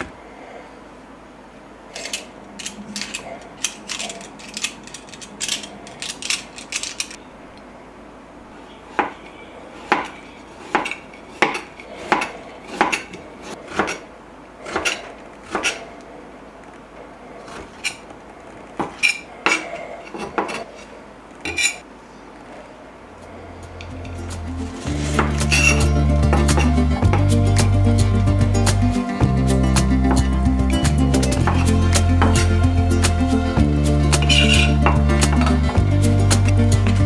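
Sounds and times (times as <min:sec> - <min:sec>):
utensils clinking on dishes: 0:02.0 - 0:07.2, 0:18.9 - 0:21.8, 0:23.8 - 0:27.3, 0:34.1 - 0:35.8.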